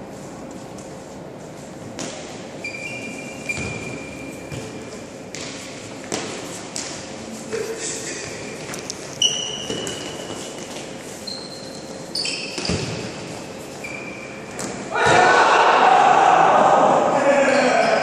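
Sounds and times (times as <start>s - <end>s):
shoes squeaking on wooden court: 0.3s - 14.9s
faint shouts: 14.9s - 18.0s.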